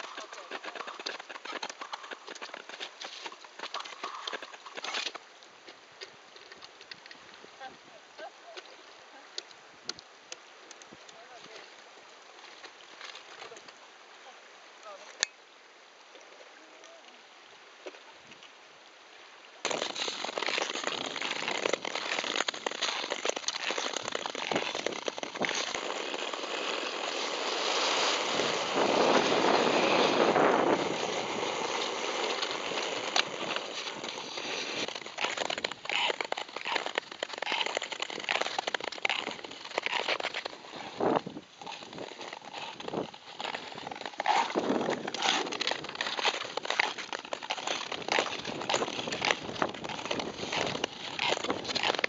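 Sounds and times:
skates scraping over ice: 0.0s - 5.8s, 19.6s - 52.0s
ski-pole tips clicking on ice: 0.0s - 7.2s, 19.6s - 52.0s.

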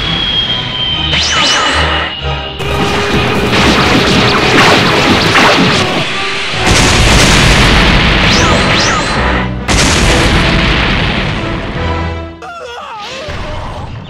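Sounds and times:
falling swoops: 0.0s - 9.4s
music: 0.0s - 14.0s
cartoon crash and explosion effects: 1.1s - 11.8s
deep boom: 6.6s - 12.2s.

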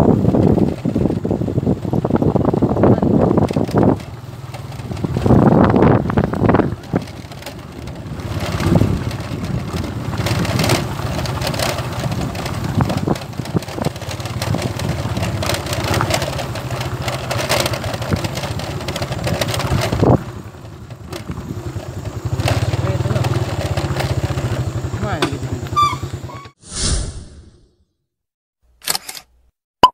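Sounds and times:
vehicle engine running: 0.0s - 26.5s
road and wind noise: 0.0s - 26.6s, 28.8s - 29.3s
sharp knocks and rattles: 3.2s - 26.4s.

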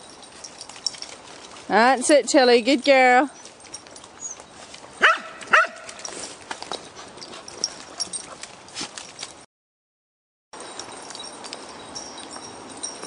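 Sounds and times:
footsteps and paws on muddy path: 0.0s - 9.5s
outdoor background: 0.0s - 9.5s, 10.5s - 13.0s
dog barking: 5.0s - 6.0s.

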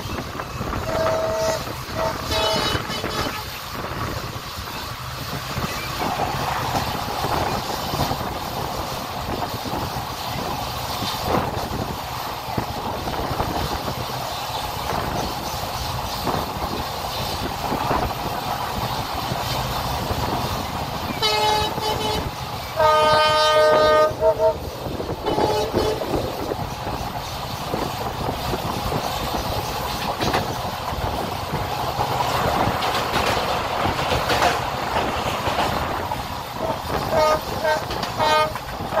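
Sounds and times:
train wheels clattering on rails: 0.0s - 39.0s
locomotive horn blasts: 0.7s - 3.6s, 21.2s - 26.2s, 36.6s - 39.0s.

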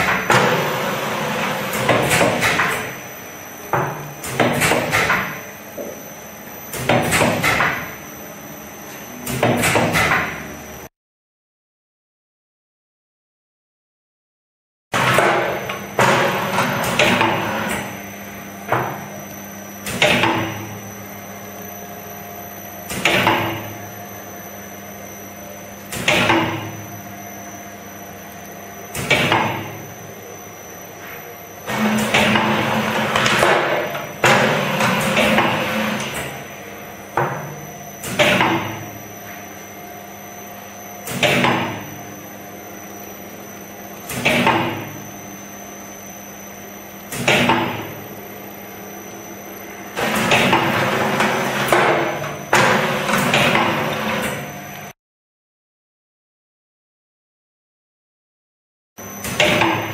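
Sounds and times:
machine humming: 15.0s - 55.0s
machine clunks: 59.2s - 59.9s.

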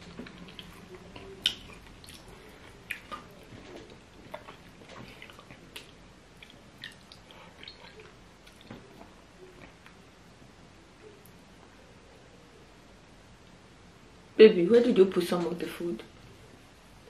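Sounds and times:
fingers squishing food: 0.0s - 10.0s
wet chewing and mouth smacks: 0.0s - 10.0s.

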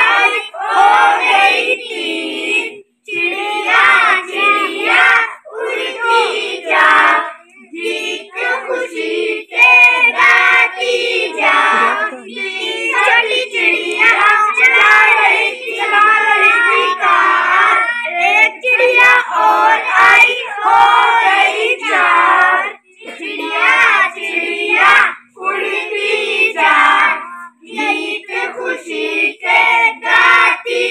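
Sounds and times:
children singing: 0.0s - 30.9s.

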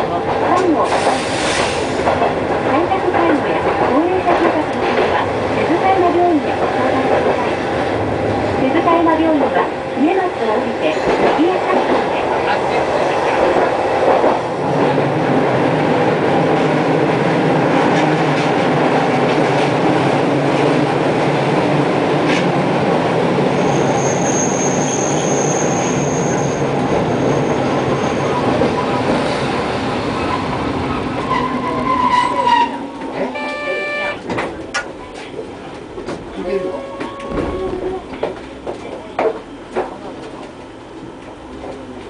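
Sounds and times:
tram wheels rumbling on rail: 0.0s - 42.0s
high wheel squeal: 23.6s - 26.6s.

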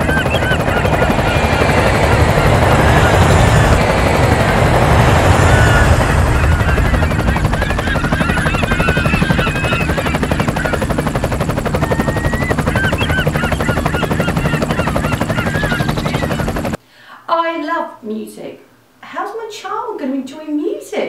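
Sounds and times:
loud rapidly pulsing noise: 0.0s - 16.8s.

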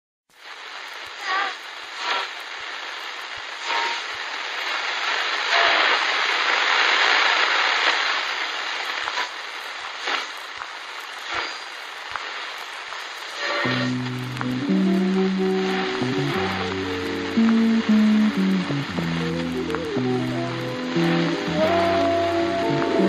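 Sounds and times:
subway train rumbling: 13.6s - 23.0s.

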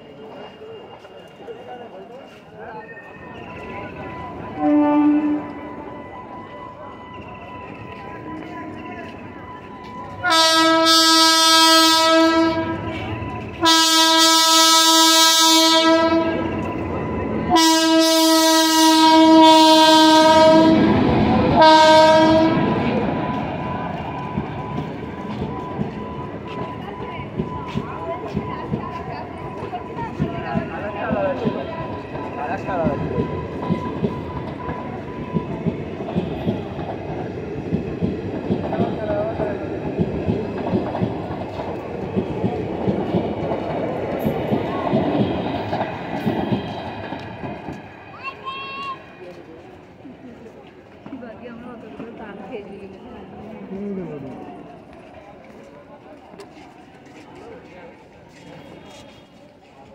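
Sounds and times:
train rumbling: 0.0s - 59.9s
train horn blasts: 4.5s - 5.7s, 10.2s - 13.0s, 13.6s - 16.5s, 17.5s - 22.9s.

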